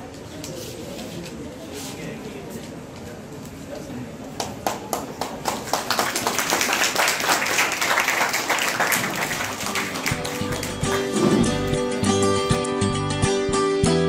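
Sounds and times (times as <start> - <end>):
group clapping: 4.3 - 12.6.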